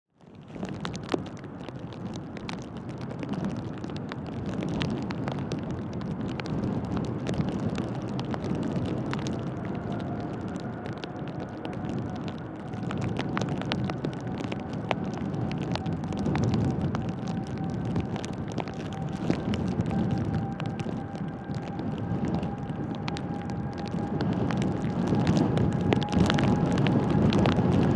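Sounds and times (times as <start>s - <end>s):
rain ticking near microphone: 0.1s - 27.9s
jet engines rumbling: 8.0s - 27.9s
jet engine whine: 8.4s - 27.9s.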